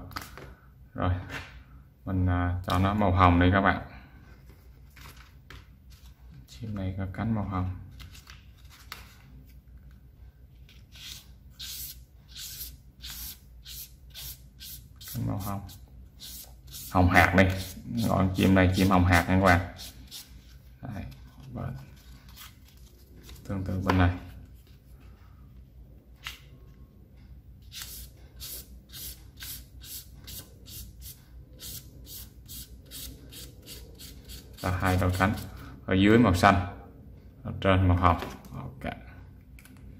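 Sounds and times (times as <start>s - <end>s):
felt-tip marker scratching paper: 11.0s - 16.9s.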